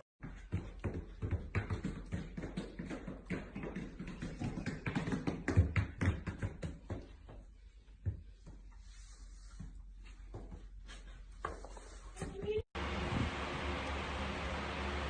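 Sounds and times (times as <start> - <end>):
quick irregular taps and knocks: 0.4 - 7.4.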